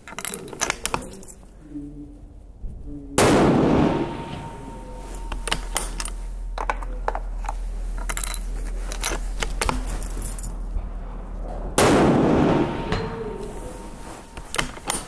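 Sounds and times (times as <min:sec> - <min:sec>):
loud rifle shot: 0:03.2 - 0:04.8, 0:11.8 - 0:13.3.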